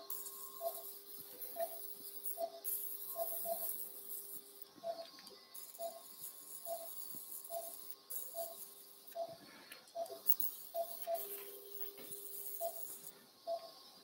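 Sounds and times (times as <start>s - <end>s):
patient monitor beeping: 0.3s - 0.8s, 4.8s - 9.4s, 10.0s - 12.9s.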